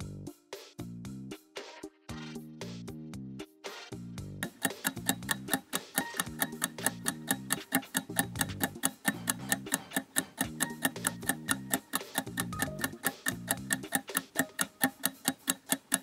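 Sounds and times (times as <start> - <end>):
clock ticking: 4.4 - 16.0.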